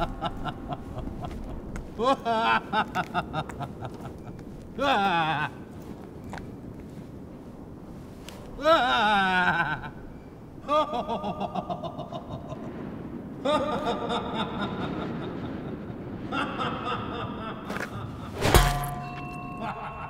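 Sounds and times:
man snickering: 0.0s - 4.2s
held ringing tone: 18.5s - 20.0s.

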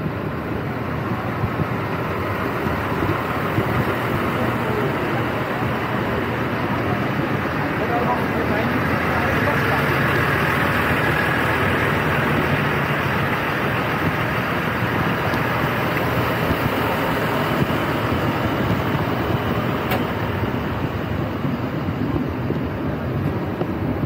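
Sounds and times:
diesel engines idling: 0.0s - 24.0s.

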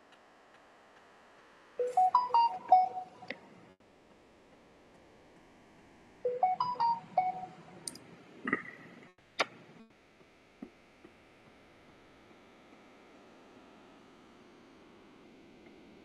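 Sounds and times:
electronic beeping jingle: 1.8s - 3.3s, 6.3s - 7.6s.

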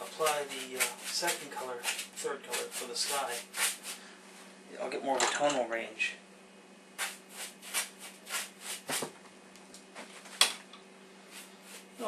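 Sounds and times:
brush scrubbing paint on canvas: 0.0s - 4.0s, 7.0s - 9.0s, 11.3s - 12.0s.

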